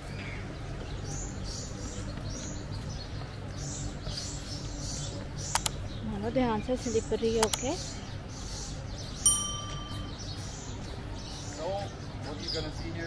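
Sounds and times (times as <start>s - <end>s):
steady low hum: 0.0s - 12.9s
small birds chirping: 0.0s - 13.0s
sharp click: 5.5s - 5.8s, 7.4s - 7.7s.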